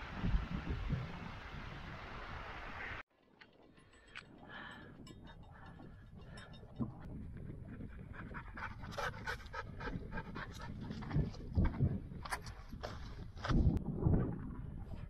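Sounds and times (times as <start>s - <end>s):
dog panting: 8.0s - 11.2s.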